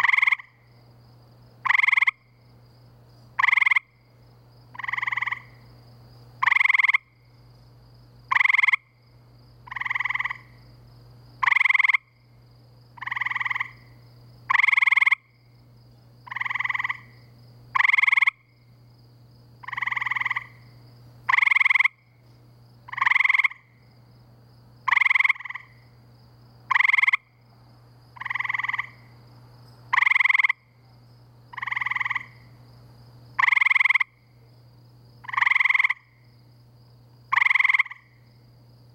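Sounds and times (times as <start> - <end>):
treefrogs trilling: 0.0 - 0.8, 1.6 - 2.4, 3.4 - 4.1, 4.7 - 5.6, 6.4 - 7.3, 8.2 - 9.0, 9.6 - 10.6, 11.4 - 12.3, 13.0 - 15.5, 16.2 - 18.7, 19.6 - 22.2, 22.8 - 23.8, 24.8 - 25.9, 26.6 - 27.5, 28.2 - 29.1, 29.9 - 30.8, 31.5 - 32.6, 33.3 - 34.3, 35.2 - 36.4, 37.2 - 38.4
steady low hum: 0.0 - 38.9.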